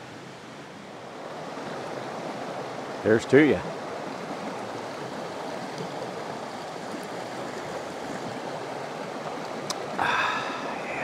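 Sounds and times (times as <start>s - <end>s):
steady rushing noise: 10.1s - 11.0s.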